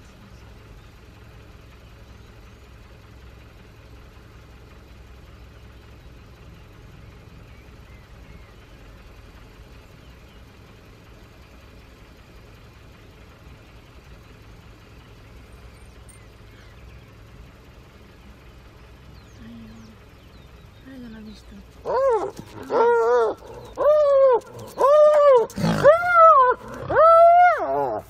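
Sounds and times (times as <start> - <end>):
vehicle engine idling: 0.0 - 28.0.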